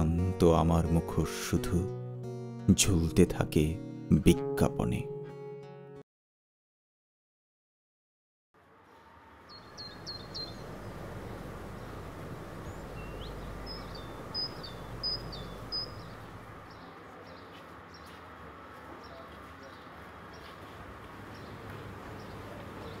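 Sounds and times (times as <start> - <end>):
low street rumble: 8.6 - 23.0
small birds chirping: 8.9 - 23.0.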